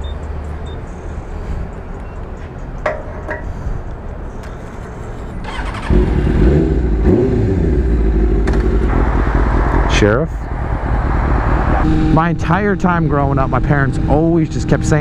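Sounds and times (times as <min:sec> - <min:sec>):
motorcycle engine starting and running: 0:05.4 - 0:15.0.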